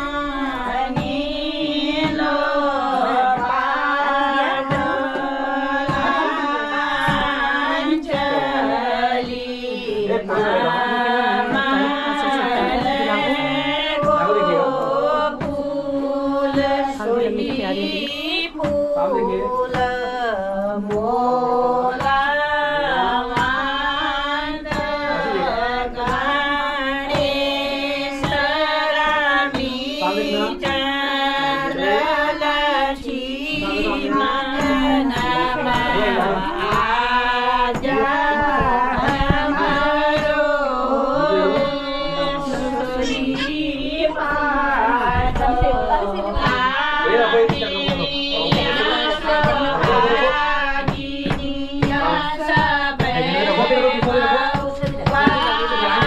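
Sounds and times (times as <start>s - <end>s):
women singing together: 0.0s - 56.0s
low knocks: 30.6s - 56.0s.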